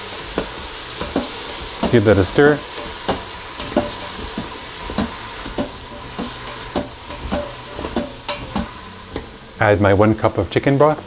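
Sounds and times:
butter sizzling in a pot: 0.0s - 11.0s
utensil scraping and knocking pot: 0.4s - 9.4s.

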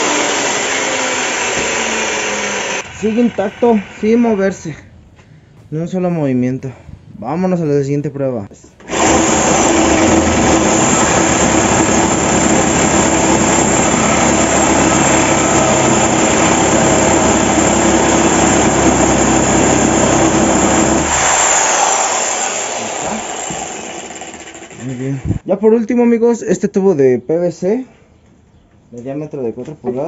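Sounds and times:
power tool motor whining: 0.0s - 4.4s, 8.8s - 25.4s.

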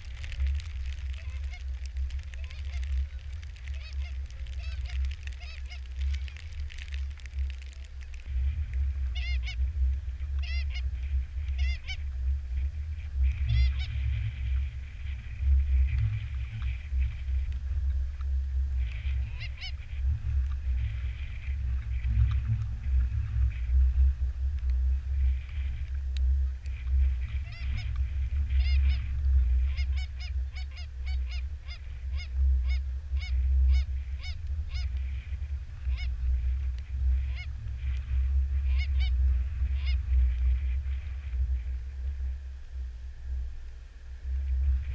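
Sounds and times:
steady low rumble: 0.0s - 44.9s
goose honking: 1.1s - 6.5s, 9.1s - 9.6s, 10.4s - 10.8s, 11.6s - 12.0s, 13.5s - 13.9s, 19.2s - 19.7s, 28.6s - 29.0s, 29.7s - 34.9s, 35.9s - 36.1s, 37.3s - 37.5s, 38.7s - 39.1s, 39.8s - 40.0s.

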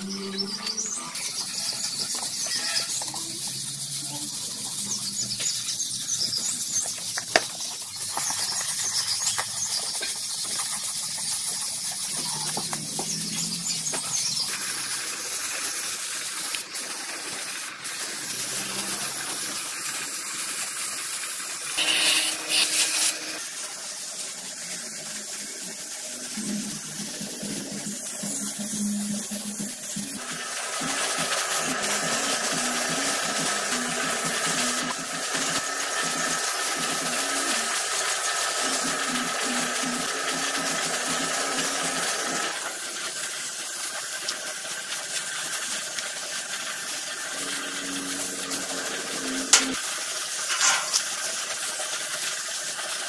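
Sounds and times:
sandpaper rubbing on plastic: 0.3s - 14.4s, 21.8s - 23.6s, 26.4s - 37.9s, 38.6s - 42.6s.

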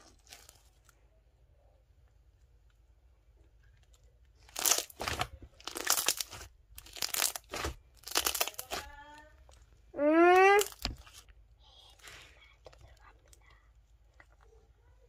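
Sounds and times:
slime crackling and popping: 4.4s - 9.1s, 10.3s - 11.2s.

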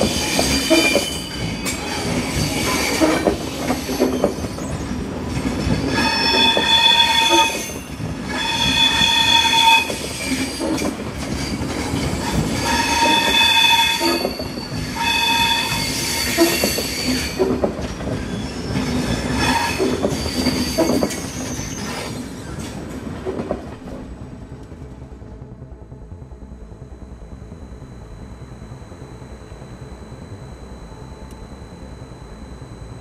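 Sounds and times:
train wheels squealing: 0.0s - 22.8s
train rumble: 0.0s - 33.0s.

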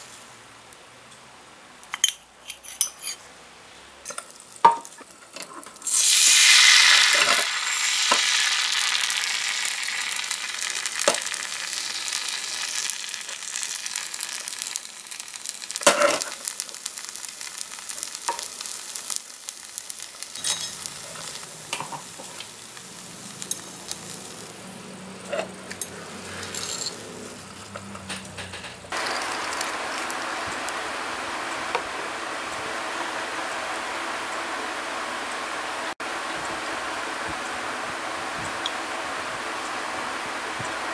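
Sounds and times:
batter sizzling in oil: 4.1s - 27.6s, 28.9s - 40.9s.

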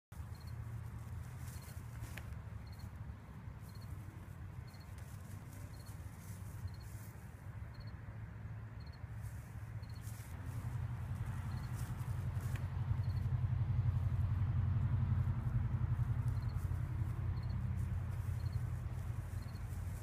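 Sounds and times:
steady low rumble: 0.1s - 20.0s
faint high chirp: 0.2s - 0.6s, 3.6s - 4.0s, 4.6s - 5.0s, 5.7s - 6.0s, 7.7s - 8.0s, 8.8s - 9.0s, 9.8s - 10.1s.

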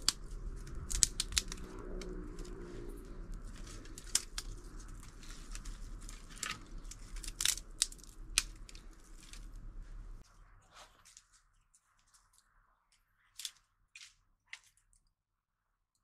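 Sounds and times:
dry twigs snapping: 0.0s - 10.2s, 13.4s - 14.9s
low steady hum: 0.0s - 11.7s.

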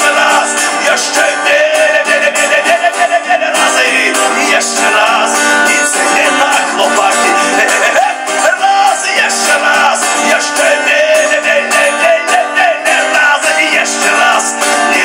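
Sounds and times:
acoustic guitar: 0.0s - 15.0s
man singing: 0.0s - 15.0s.

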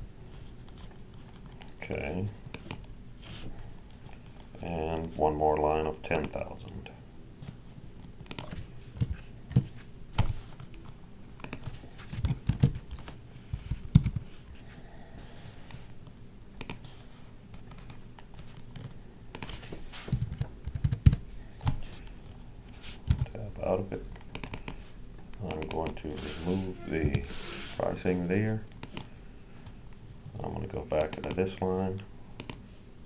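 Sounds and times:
typing on keyboard: 20.2s - 21.2s.

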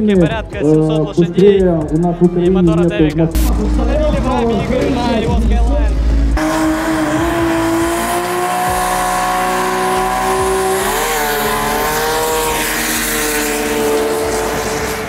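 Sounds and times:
exhaust and tyre noise: 0.0s - 15.0s
race car engine at high revs: 3.3s - 15.0s.

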